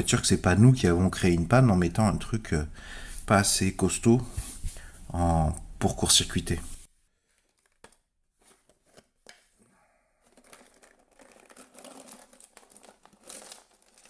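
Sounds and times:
cables rustling in plastic jar: 7.2s - 9.6s, 10.2s - 14.0s.

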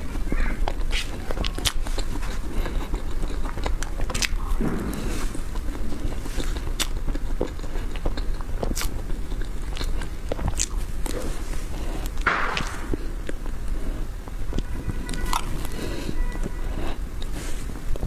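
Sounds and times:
wet mouth smacks while eating: 0.7s - 11.2s.

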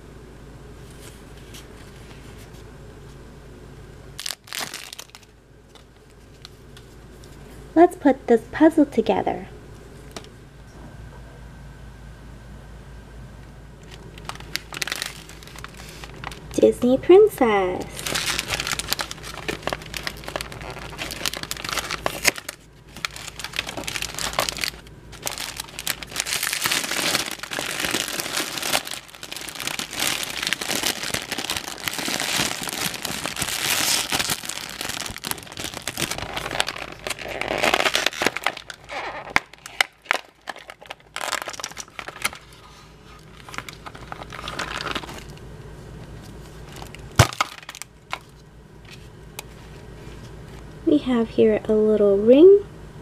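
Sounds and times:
foil wrapper crinkling: 4.2s - 7.3s, 13.8s - 45.4s, 46.1s - 50.3s.

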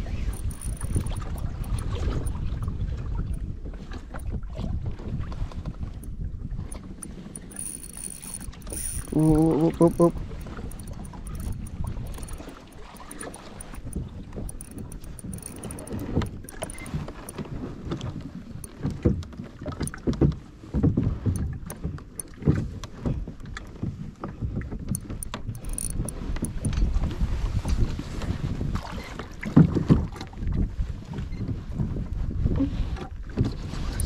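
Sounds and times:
wind buffeting the microphone: 0.0s - 34.0s
water slapping against a hull: 10.1s - 34.0s.

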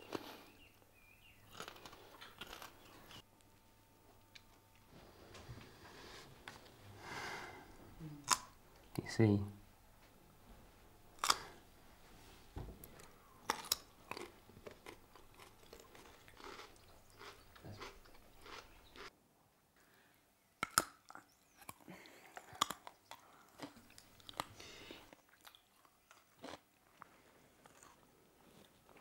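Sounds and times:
people crunching raw carrots: 1.4s - 3.2s, 8.2s - 8.6s, 11.2s - 11.6s, 12.8s - 19.1s, 20.6s - 29.0s.

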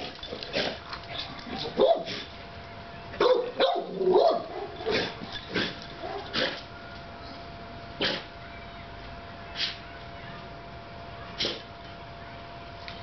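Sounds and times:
dog barking: 1.6s - 2.2s, 3.2s - 5.1s, 6.0s - 6.5s.

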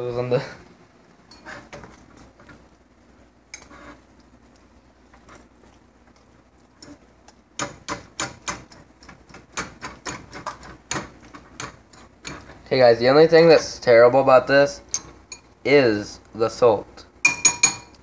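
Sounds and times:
kitchen items clicking and tapping: 7.6s - 12.5s, 17.3s - 18.0s.

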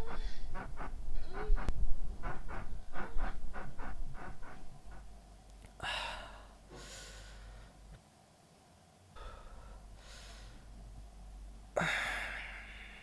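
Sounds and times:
person panting: 0.0s - 5.0s, 5.8s - 7.8s, 9.2s - 10.7s, 11.8s - 13.0s
person sighing: 5.8s - 7.5s, 11.8s - 13.0s.

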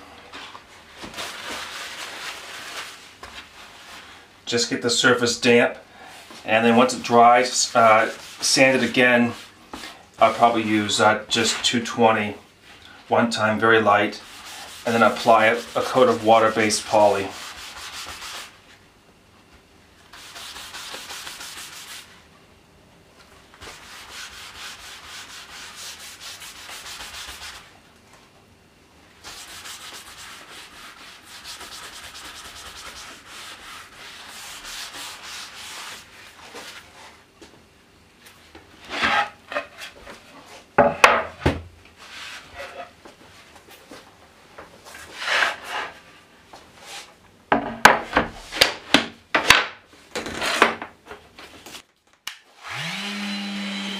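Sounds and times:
sandpaper sanding wood: 7.5s - 9.6s, 14.1s - 18.6s, 20.1s - 22.1s, 23.6s - 27.7s, 29.2s - 36.8s.

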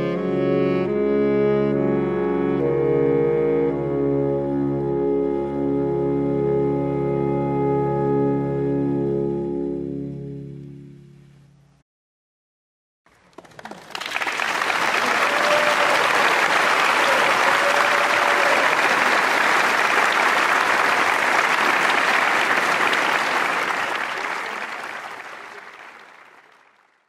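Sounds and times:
audience applauding: 13.1s - 27.0s.

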